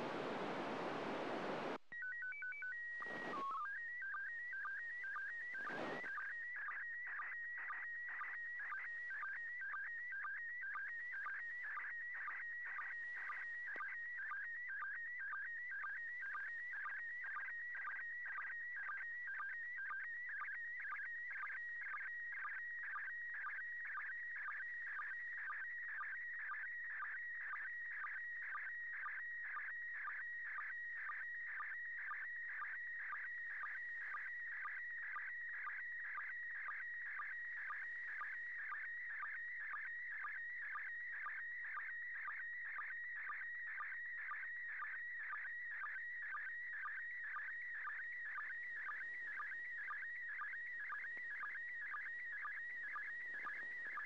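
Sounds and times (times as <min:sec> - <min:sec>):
static crackle: 0:00.0 - 0:01.8, 0:03.0 - 0:03.6, 0:05.4 - 0:06.2, 0:52.5 - 0:54.0.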